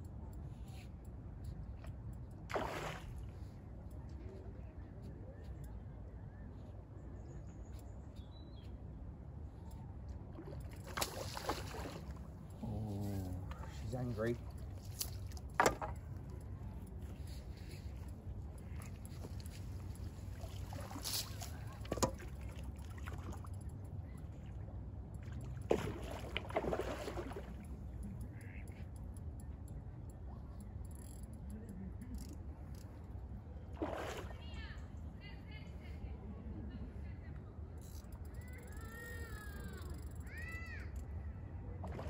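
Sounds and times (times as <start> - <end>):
water splashing: 2.5 - 3.3, 10.3 - 12.6, 18.7 - 23.7, 25.2 - 28.5, 33.7 - 34.6
faint bird chirps: 4.0 - 8.8.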